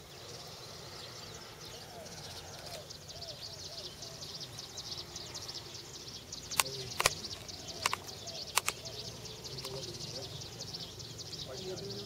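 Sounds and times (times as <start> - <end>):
small birds chirping: 0.0 - 12.0
sharp clicks: 6.4 - 8.9, 9.6 - 9.9.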